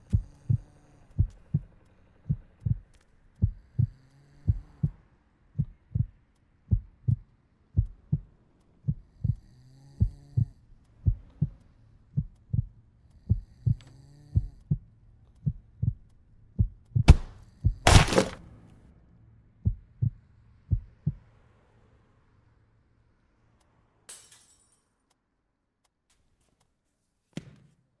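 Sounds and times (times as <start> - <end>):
heartbeat double beats: 0.1 - 5.0, 5.6 - 9.4, 10.0 - 11.6, 12.2 - 13.8, 14.4 - 18.2, 19.6 - 21.3.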